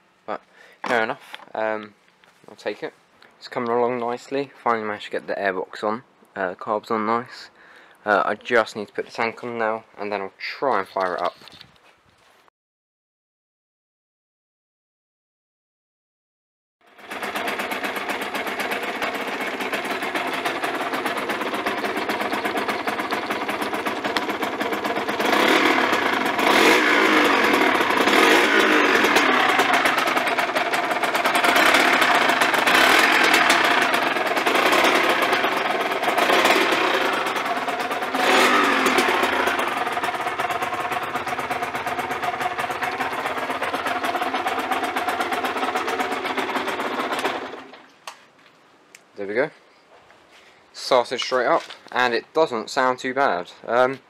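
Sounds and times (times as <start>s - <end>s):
two-stroke engine idling and revving: 16.8s - 47.8s.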